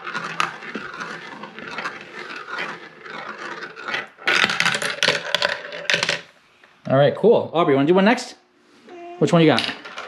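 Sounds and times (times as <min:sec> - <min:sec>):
marble clattering down plastic track: 0:00.0 - 0:06.3, 0:09.5 - 0:10.0
marble rolling in plastic bowl: 0:00.0 - 0:06.4, 0:09.4 - 0:10.0.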